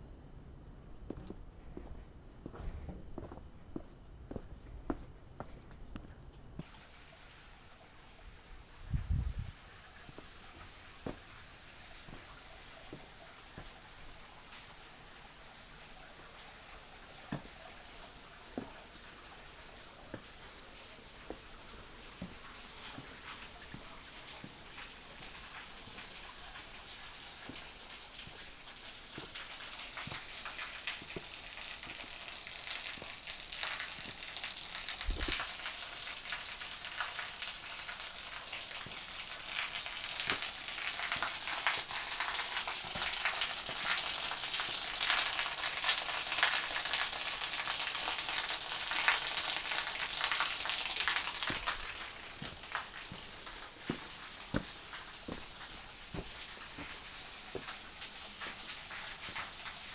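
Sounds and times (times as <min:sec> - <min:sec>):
footsteps on stone paving: 0:01.1 - 0:06.2, 0:10.1 - 0:11.4, 0:12.0 - 0:13.7, 0:17.3 - 0:17.6, 0:18.6 - 0:18.8, 0:20.1 - 0:20.4, 0:21.2 - 0:24.6, 0:27.4 - 0:32.1, 0:50.6 - 0:59.5
water splashing at waterfall: 0:09.5 - 0:59.9.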